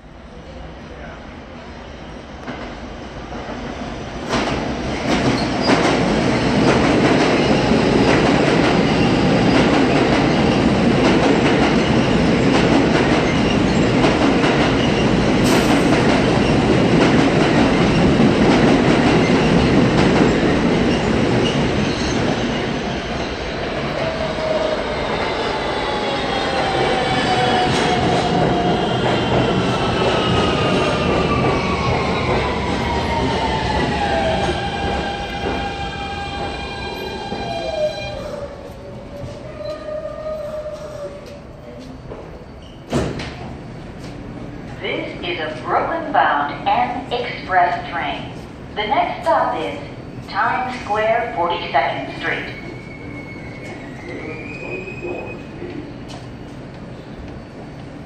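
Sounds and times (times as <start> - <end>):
subway train rumbling: 0.0 - 58.0
braking train whine: 44.7 - 58.0.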